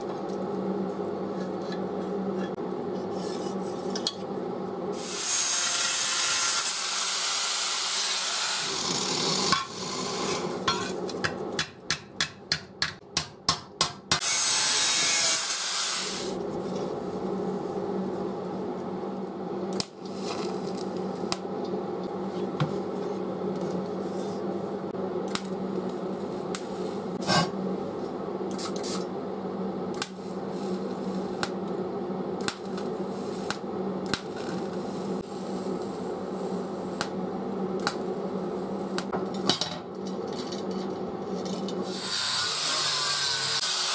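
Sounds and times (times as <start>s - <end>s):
electric welding hum: 0.0s - 11.6s, 14.2s - 22.3s, 23.4s - 39.2s, 41.7s - 43.9s
angle grinder cutting steel: 5.0s - 10.5s, 14.2s - 16.4s, 41.8s - 43.9s
welding arc crackles and clicks: 25.3s - 26.7s, 29.9s - 31.7s, 32.4s - 34.8s.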